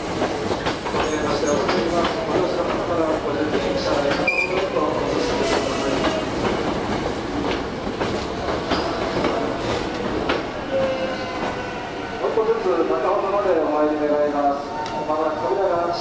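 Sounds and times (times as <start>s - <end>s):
train wheels clattering: 0.0s - 11.7s.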